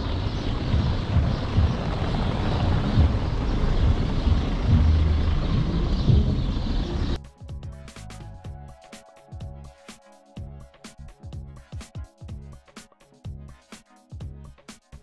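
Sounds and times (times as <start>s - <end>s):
car tyres rumbling on cobblestones: 0.0s - 7.2s
low thumps: 0.0s - 7.2s.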